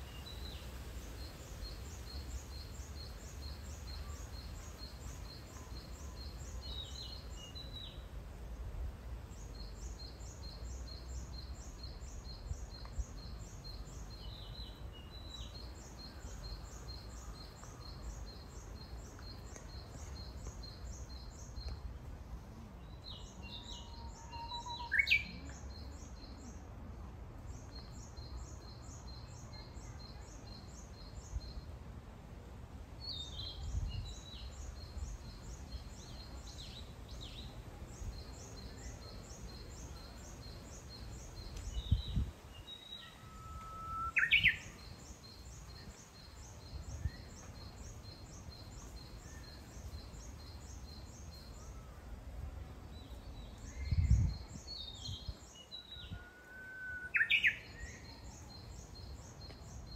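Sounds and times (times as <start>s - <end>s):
bush warbler whistled song: 0.0s - 8.1s, 22.8s - 26.5s, 33.0s - 52.0s, 52.9s - 59.9s.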